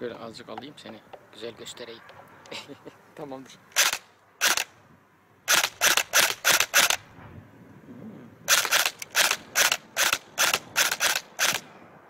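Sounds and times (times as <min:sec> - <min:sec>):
airsoft rifle shots cracking: 0:03.8 - 0:04.8, 0:05.5 - 0:07.0, 0:08.5 - 0:11.7.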